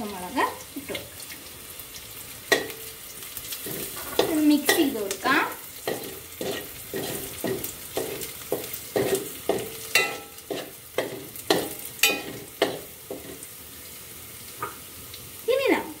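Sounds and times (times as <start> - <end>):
food sizzling in oil: 0.0 - 16.0
metal spoon scraping a pot: 5.9 - 13.4.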